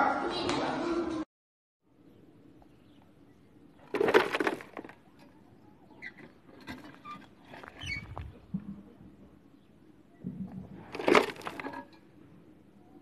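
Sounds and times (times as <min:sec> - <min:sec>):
gravel rattling into toy truck: 0:03.8 - 0:05.3, 0:10.8 - 0:12.0.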